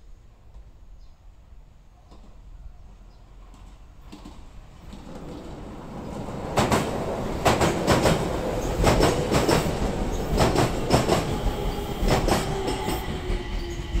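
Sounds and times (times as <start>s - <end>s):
train wheels clacking over rail joints: 3.5s - 14.0s
electric train passing: 4.0s - 14.0s.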